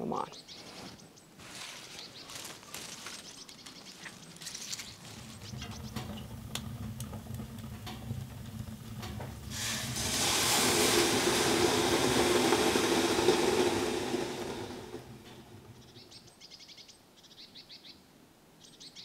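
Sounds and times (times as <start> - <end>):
water hissing on hot stones: 1.4 - 16.2
low hum: 3.0 - 16.3.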